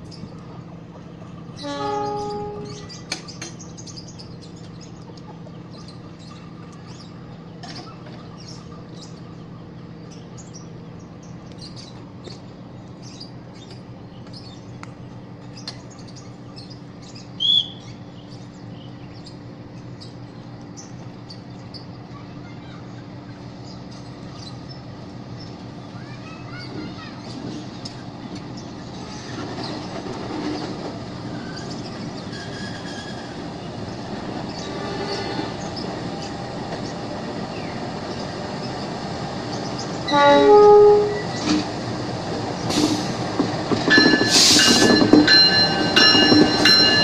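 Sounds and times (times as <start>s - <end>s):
birds chirping: 0.0s - 47.0s
diesel locomotive running: 0.0s - 47.0s
locomotive horn blast: 1.6s - 2.9s, 40.0s - 41.4s.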